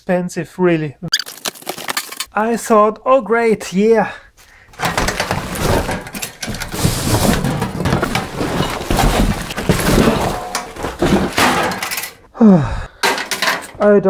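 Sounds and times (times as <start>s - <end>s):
cardboard box scraping and rustling: 4.9s - 11.3s.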